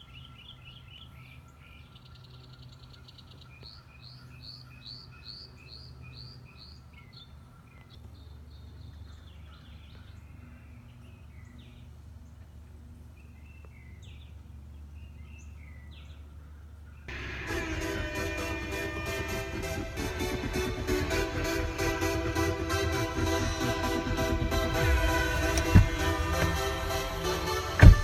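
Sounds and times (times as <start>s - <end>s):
birds chirping: 0.0s - 28.0s
low steady hum: 0.0s - 28.0s
electronic dance music: 17.1s - 28.0s.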